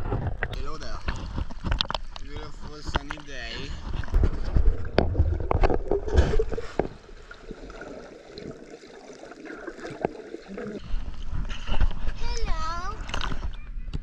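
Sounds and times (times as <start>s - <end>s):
underwater water sloshing: 0.0s - 13.8s.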